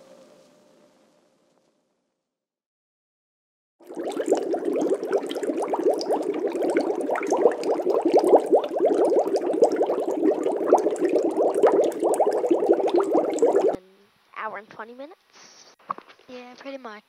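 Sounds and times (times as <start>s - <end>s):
water bubbling: 3.8s - 13.8s.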